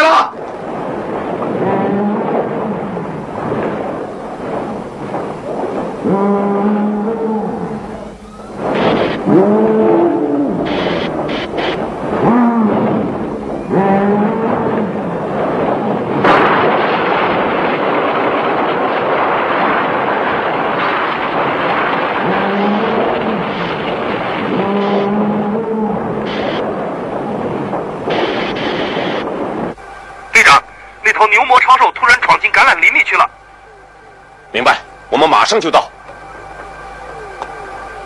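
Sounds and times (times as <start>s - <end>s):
noisy din of destruction: 0.0s - 38.0s
monster roaring: 1.5s - 3.0s, 6.0s - 8.1s, 9.0s - 11.1s, 12.1s - 15.2s, 22.2s - 23.8s, 24.4s - 26.3s
sharp crash: 16.2s - 25.1s.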